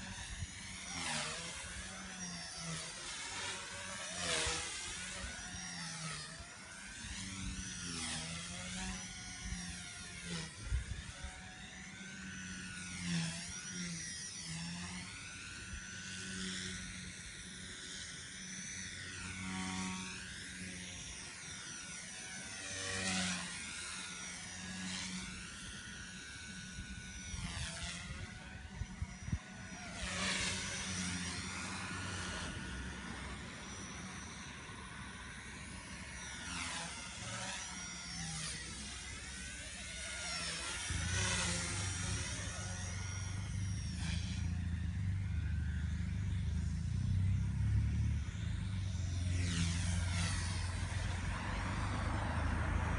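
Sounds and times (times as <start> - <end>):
rc helicopter motor whining: 0.0 - 52.9
wind rumble on microphone: 10.3 - 11.4, 26.7 - 30.3, 40.8 - 44.5.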